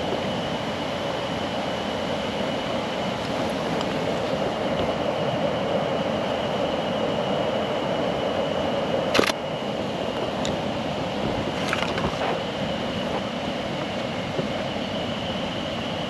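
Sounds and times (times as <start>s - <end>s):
camera shutter release: 9.2s - 9.4s.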